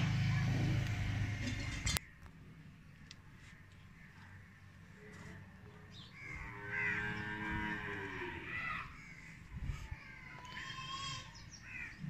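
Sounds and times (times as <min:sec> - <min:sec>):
cow mooing: 0:06.5 - 0:08.6.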